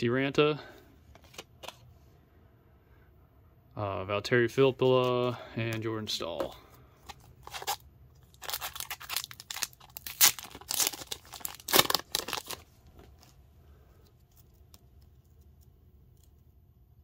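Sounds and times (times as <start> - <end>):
wrapper tearing and crinkling: 7.4 - 13.4.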